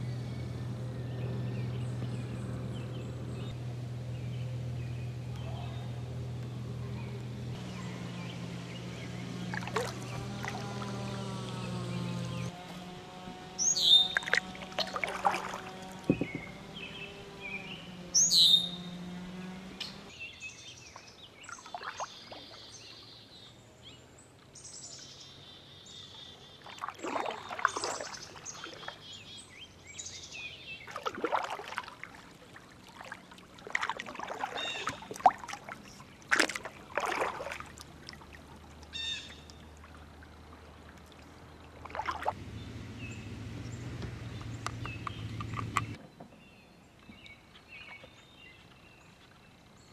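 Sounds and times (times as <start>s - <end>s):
songbirds chirping: 0.0s - 49.9s
paddle splashing in water: 7.6s - 17.5s, 20.9s - 22.9s, 26.5s - 29.4s, 30.7s - 43.2s.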